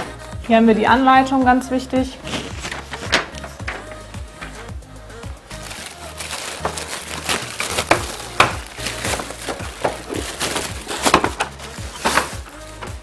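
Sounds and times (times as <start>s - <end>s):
plastic bag crinkling: 5.5s - 12.8s.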